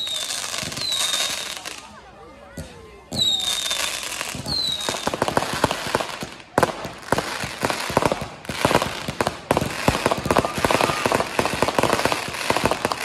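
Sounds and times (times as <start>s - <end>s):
falling firework whistle: 0.0s - 1.5s, 3.2s - 5.2s, 10.2s - 13.0s
fireworks crackling and popping: 0.0s - 2.0s, 2.6s - 13.0s.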